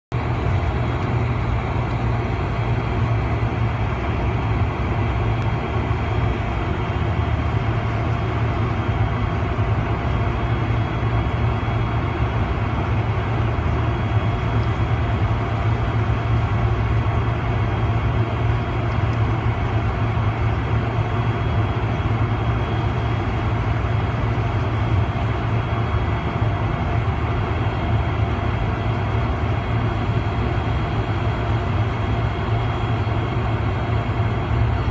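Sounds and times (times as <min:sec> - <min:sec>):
jet engines low rumble: 0:00.0 - 0:34.9
faint high engine whine: 0:00.1 - 0:34.9.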